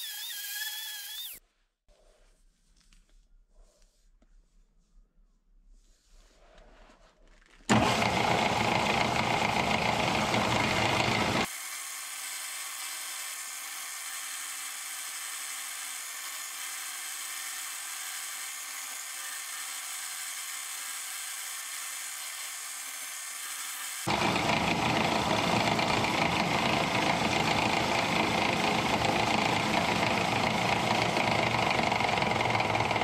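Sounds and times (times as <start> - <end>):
buffing machine running: 7.7 - 11.5, 24.0 - 33.0.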